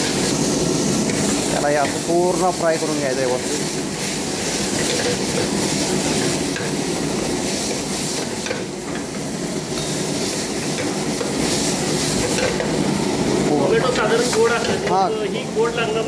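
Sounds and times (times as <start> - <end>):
vegetables sizzling in oil: 0.0 - 16.0
metal ladle scraping a pan: 4.4 - 6.7.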